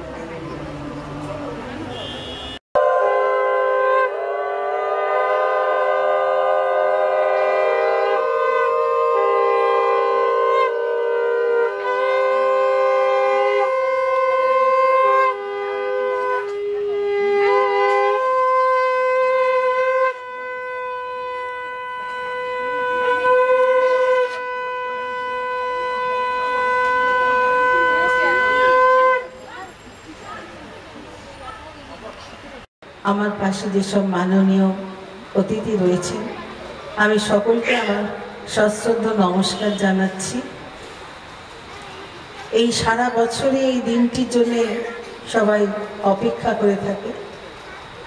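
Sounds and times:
conch shells blown in long notes: 2.0s - 29.4s.

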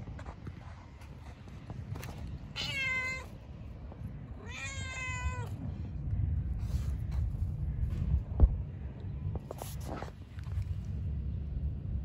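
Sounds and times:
cat meowing: 2.5s - 3.3s, 4.4s - 5.6s.

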